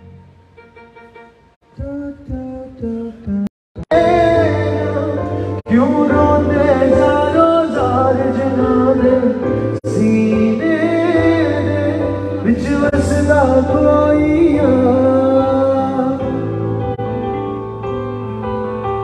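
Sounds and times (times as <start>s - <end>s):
man singing into a microphone: 1.7s - 16.9s
bass guitar: 1.8s - 19.0s.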